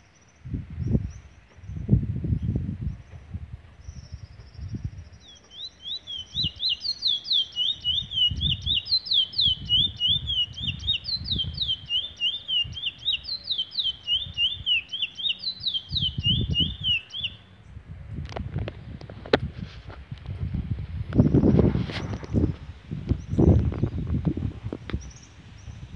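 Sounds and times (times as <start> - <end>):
bullfinch singing: 3.8 - 17.6.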